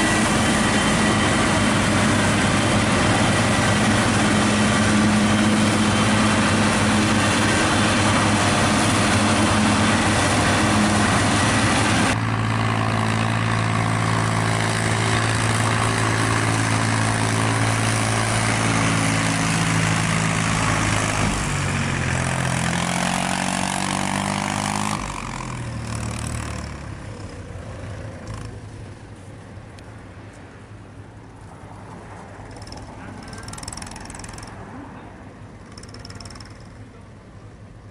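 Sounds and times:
harvester and tractor engines: 0.0s - 37.9s
tractor engine running steadily: 0.0s - 37.9s.

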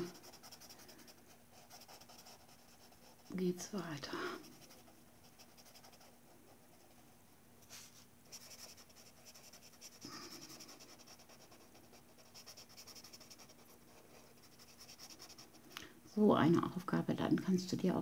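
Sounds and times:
pencil scratching on paper: 0.0s - 3.5s, 4.3s - 7.0s, 7.7s - 15.6s.

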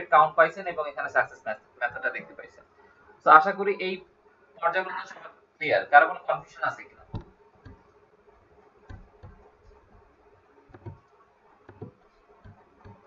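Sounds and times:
computer mouse clicks: 10.7s - 11.1s, 11.7s - 13.0s.

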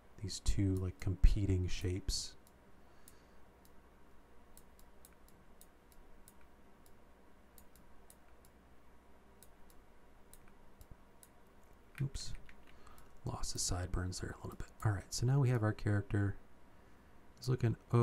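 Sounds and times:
steady low hum: 0.0s - 18.0s
computer mouse clicks: 2.4s - 3.8s, 4.5s - 8.6s, 9.4s - 13.1s.

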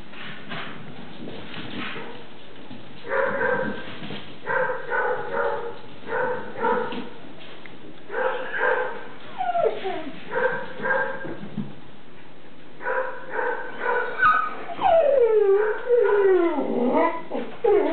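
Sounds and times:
puppy whining: 9.3s - 10.2s, 14.0s - 17.9s.

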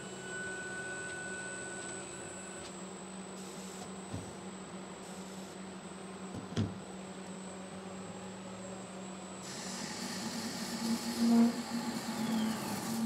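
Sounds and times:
spindle humming with high whine: 0.0s - 13.0s
hiss of metal cutting: 9.4s - 13.0s.

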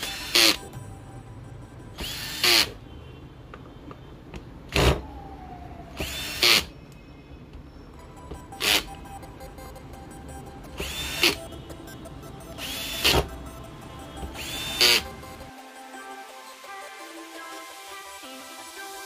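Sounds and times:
cordless screwdriver whirring: 2.0s - 2.8s, 6.0s - 6.7s, 10.8s - 11.4s, 14.4s - 15.1s.

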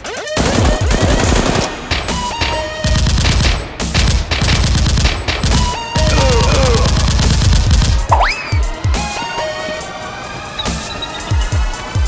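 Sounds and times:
automatic gunfire bursts: 0.1s - 9.6s
electronic music beat: 5.5s - 9.8s.

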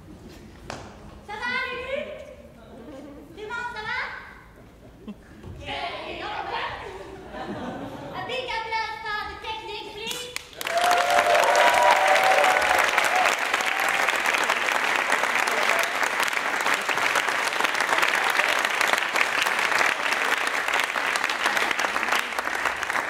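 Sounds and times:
audience applauding: 10.4s - 23.0s.

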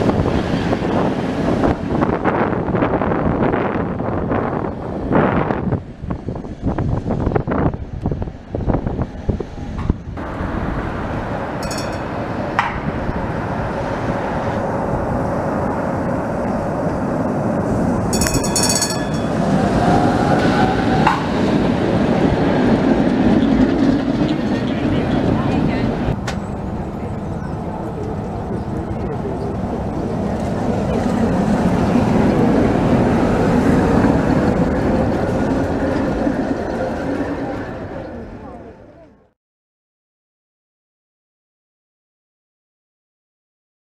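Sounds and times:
wind buffeting microphone: 0.0s - 39.2s
tram rumbling along track: 0.0s - 39.3s.

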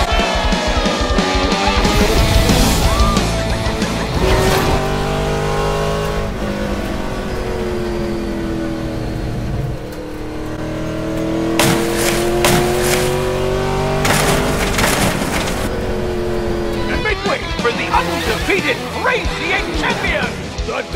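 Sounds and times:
race car engines revving: 0.0s - 20.9s
sharp crashes: 11.5s - 15.7s.

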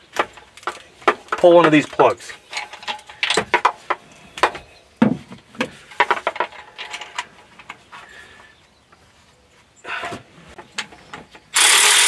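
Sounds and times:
hand tools clicking and knocking: 0.0s - 7.8s.

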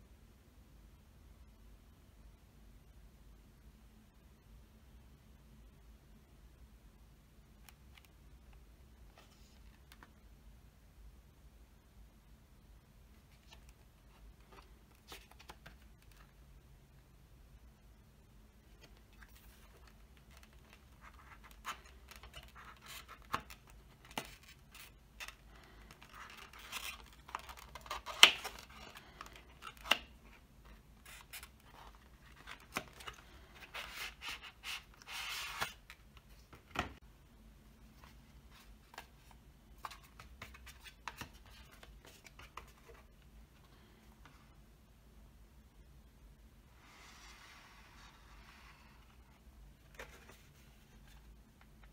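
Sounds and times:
paper rustling against card: 18.6s - 37.0s.

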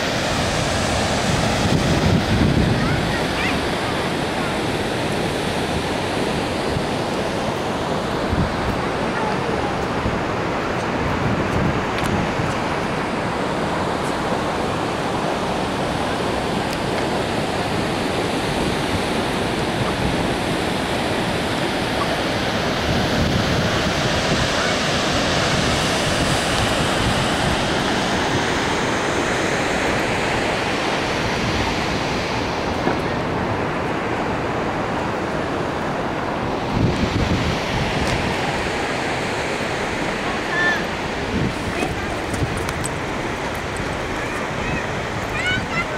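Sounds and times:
waterfall rushing: 0.0s - 45.9s
wind buffeting microphone: 0.0s - 45.9s.

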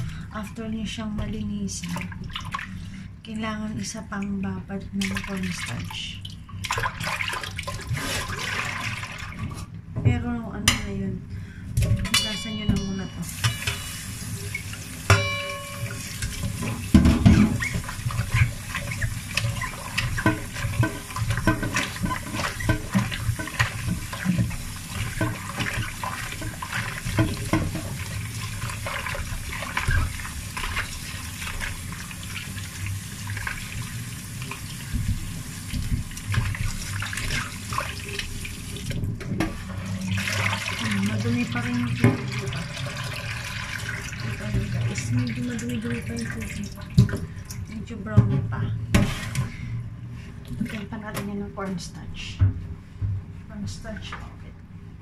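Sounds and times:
tap water running into metal bowl: 12.2s - 47.7s
mushrooms rubbed and rinsed by hand: 16.0s - 46.9s.

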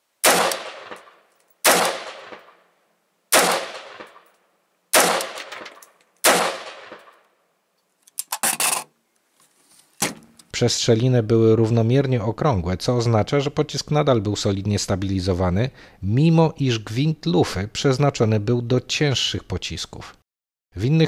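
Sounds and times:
rifle shots: 0.2s - 2.6s, 3.3s - 4.3s, 4.9s - 7.2s.

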